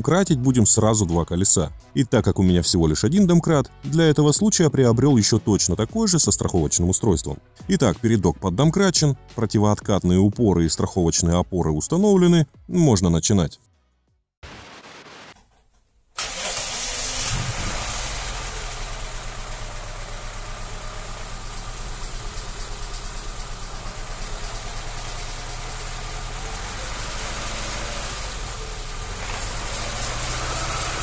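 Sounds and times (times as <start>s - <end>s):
petrol engine running: 16.2s - 31.0s.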